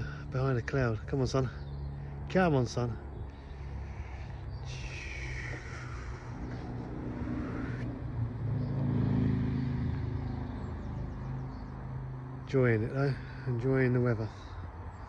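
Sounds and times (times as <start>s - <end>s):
vehicle engine passing: 0.0s - 14.9s.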